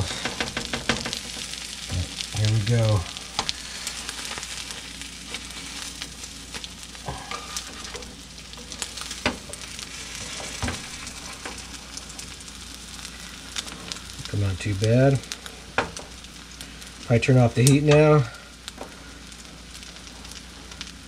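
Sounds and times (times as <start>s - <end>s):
omelette sizzling in a skillet: 0.0s - 21.0s
spatula scraping and knocking pan: 7.0s - 11.6s.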